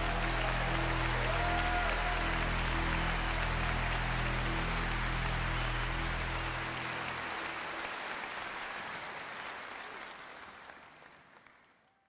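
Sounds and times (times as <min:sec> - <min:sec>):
held low chord: 0:00.0 - 0:07.3
audience applauding: 0:00.0 - 0:12.0.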